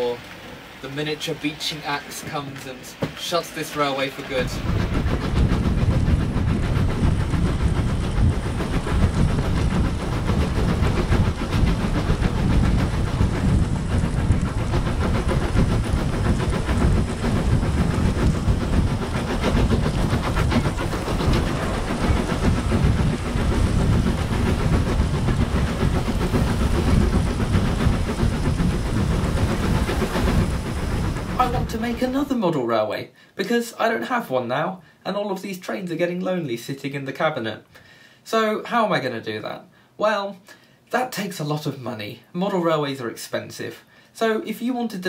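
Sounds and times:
model train rumbling on track: 0.0 - 45.0.

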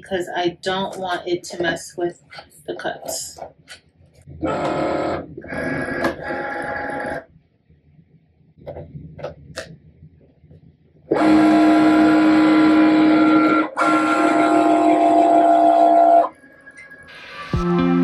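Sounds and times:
cutting machine motors whining: 4.4 - 7.2, 11.1 - 16.3.

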